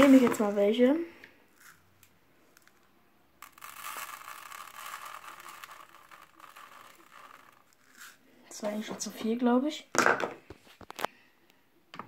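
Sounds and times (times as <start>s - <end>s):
detergent granules rustling in scoop: 0.0s - 0.8s, 1.6s - 1.8s, 3.4s - 8.9s.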